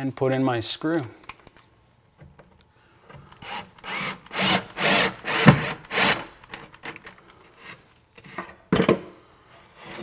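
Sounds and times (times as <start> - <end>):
cordless drill driving screw: 3.3 - 7.0.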